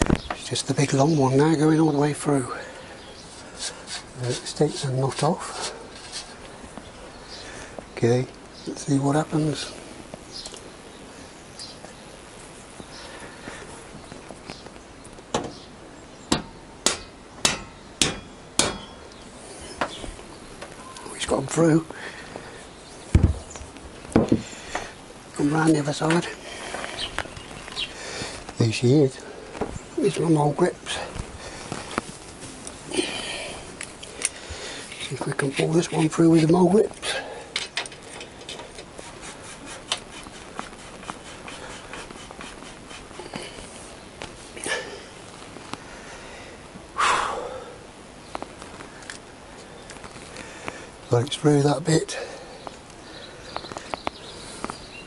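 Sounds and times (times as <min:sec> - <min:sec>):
hammer striking steel bolt: 0:16.3 - 0:19.0.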